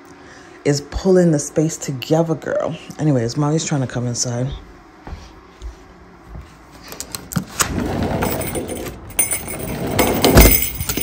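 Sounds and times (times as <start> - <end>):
sliding glass door opening: 7.4 - 10.6
jingle bells jingling and rattling: 8.2 - 11.0.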